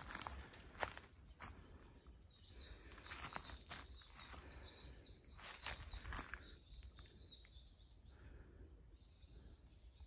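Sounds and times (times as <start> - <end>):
footsteps on dry leaves: 0.0 - 1.8, 2.7 - 7.1
birds chirping: 0.0 - 10.0.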